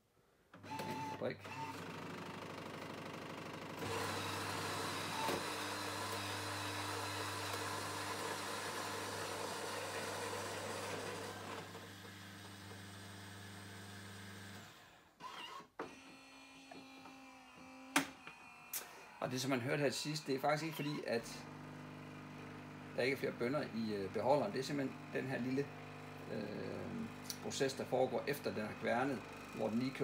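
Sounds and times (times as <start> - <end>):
coffee grinder grinding beans: 3.8 - 14.8, 17.5 - 30.0.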